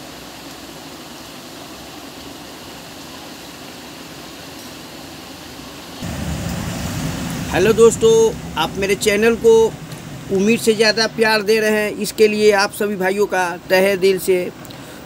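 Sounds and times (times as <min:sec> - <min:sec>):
room hiss: 0:00.0 - 0:15.0
low rumble: 0:06.0 - 0:11.5.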